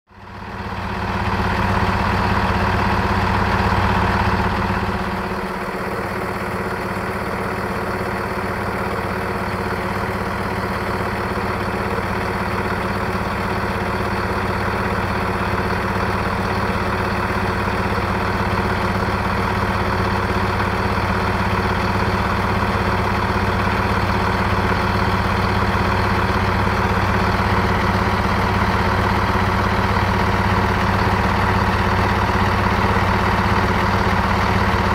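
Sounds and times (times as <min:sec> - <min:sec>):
diesel train engine idling: 0:00.1 - 0:34.9.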